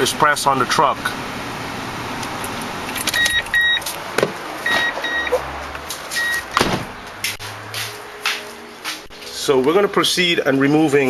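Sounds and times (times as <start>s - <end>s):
car warning chime beeping: 3.0s - 3.9s, 4.6s - 5.4s, 6.1s - 6.6s
door and hood thumps and clicks: 6.5s - 6.9s.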